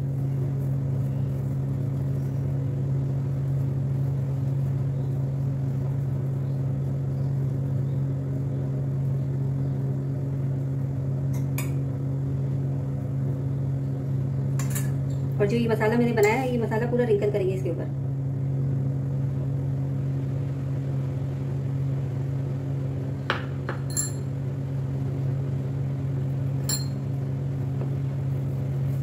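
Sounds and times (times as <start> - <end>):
low machine hum: 0.0 - 29.0
light spoon clinks: 23.9 - 24.3, 26.6 - 27.0.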